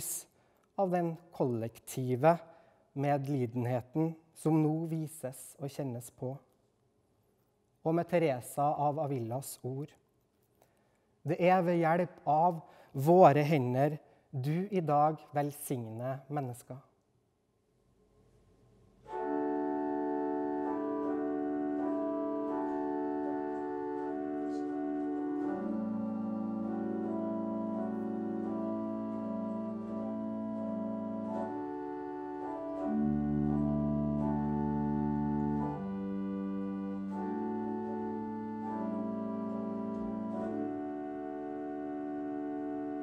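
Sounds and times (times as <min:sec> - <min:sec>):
pipe organ chords: 0:18.9 - 0:43.0.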